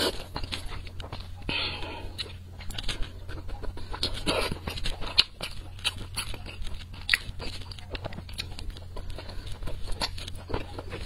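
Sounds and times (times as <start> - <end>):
chewing with wet mouth smacks: 0.0 - 11.0
low hum: 0.0 - 11.0.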